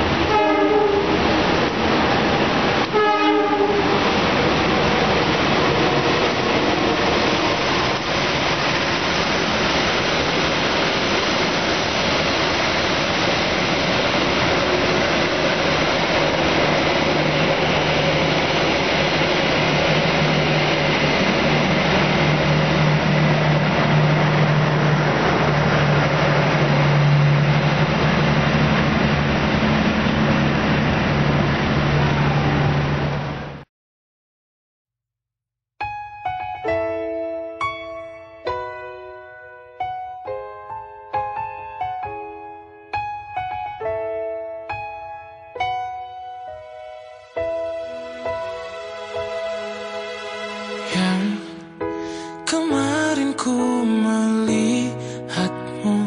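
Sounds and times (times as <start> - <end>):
train horn blasts: 0.0 - 1.3, 2.8 - 4.1, 47.0 - 51.8
passenger train passing: 0.0 - 33.6, 44.6 - 56.0
low steady drone: 47.5 - 51.5.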